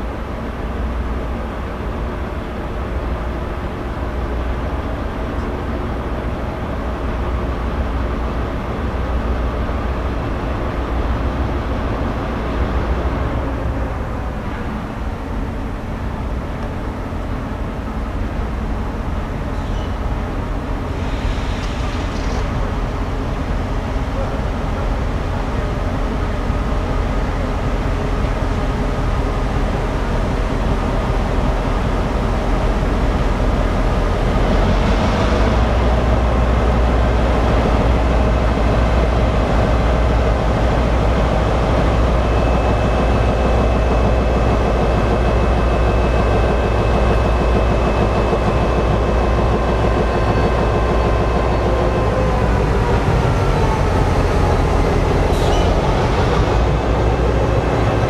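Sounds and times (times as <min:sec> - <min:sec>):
diesel locomotive engine rumble: 0:00.0 - 0:58.0
thin steady whine: 0:13.4 - 0:58.0.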